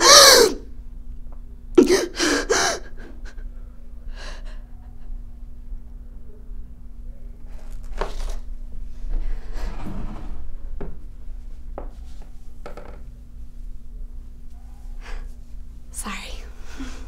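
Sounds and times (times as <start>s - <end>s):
steady low hum: 0.0s - 17.0s
woman breathing and gasping: 1.8s - 3.5s.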